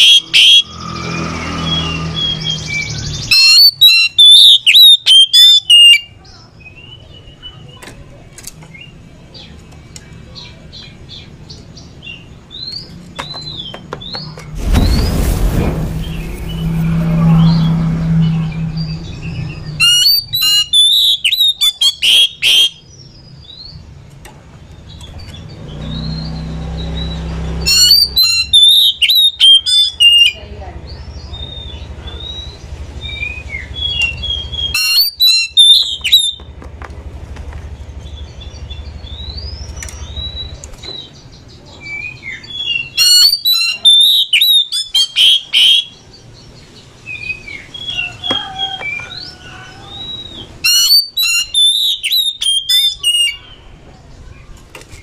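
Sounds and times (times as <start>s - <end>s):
bird singing whistles and chatter: 0.0s - 8.0s, 17.3s - 23.8s, 24.9s - 36.5s, 38.1s - 46.2s, 47.0s - 55.0s
low rumble: 14.4s - 19.9s.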